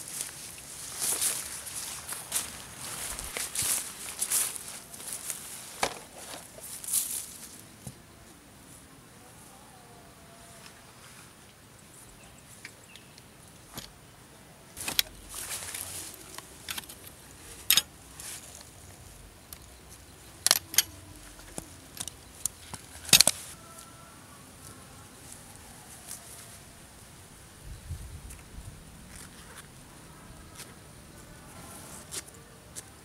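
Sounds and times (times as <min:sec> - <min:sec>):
backpack and grass rustling: 0:00.0 - 0:08.8, 0:14.8 - 0:23.8
metal tent poles clinking: 0:14.8 - 0:18.7, 0:20.3 - 0:23.5.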